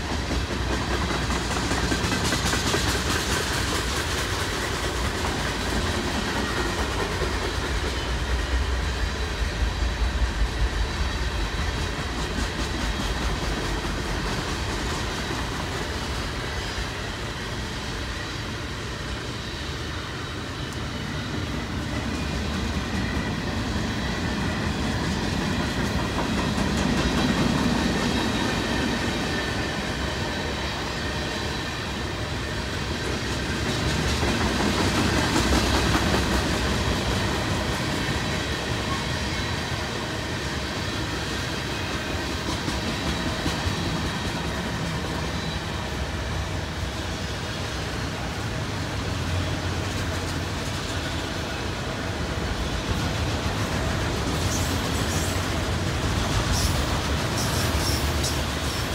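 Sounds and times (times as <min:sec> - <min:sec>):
train wheels rumbling on rails: 0:00.0 - 0:58.9.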